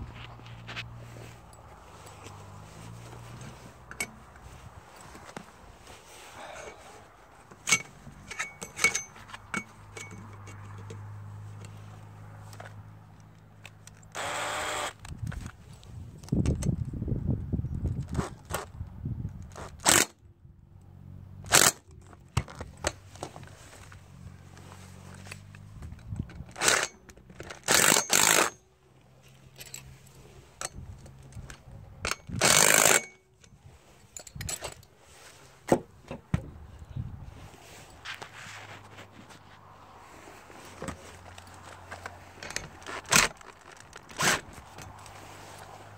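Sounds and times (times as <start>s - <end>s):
clicks and knocks of metal mast: 7.4s - 11.1s, 35.6s - 36.6s
cordless drill driving bolts: 14.1s - 15.1s, 19.8s - 20.1s, 21.5s - 21.8s, 26.5s - 26.9s, 27.5s - 28.6s, 32.2s - 33.2s.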